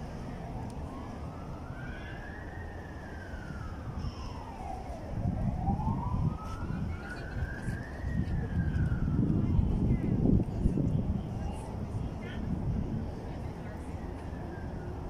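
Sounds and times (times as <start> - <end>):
siren wailing: 0.0 - 9.9.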